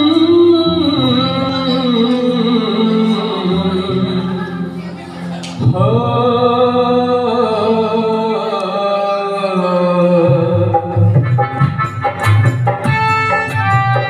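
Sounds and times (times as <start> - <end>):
man singing through microphone: 0.0 - 11.7
keyboard: 0.0 - 14.0
hand drum rhythm: 10.6 - 14.0.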